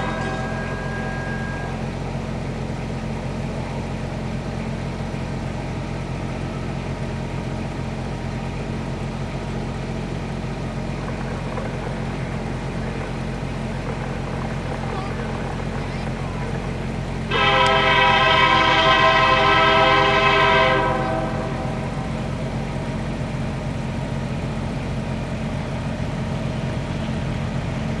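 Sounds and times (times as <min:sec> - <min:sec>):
diesel locomotive engine droning: 0:00.0 - 0:28.0.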